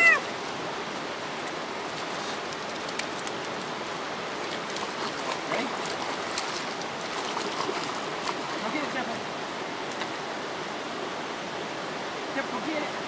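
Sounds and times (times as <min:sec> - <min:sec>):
river flowing over shallows: 0:00.0 - 0:13.0
dog splashing in water: 0:04.4 - 0:08.7.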